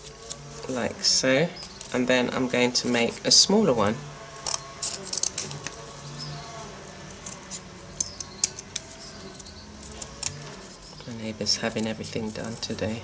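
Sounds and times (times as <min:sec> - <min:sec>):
scissors snipping cardboard: 0:04.5 - 0:05.8.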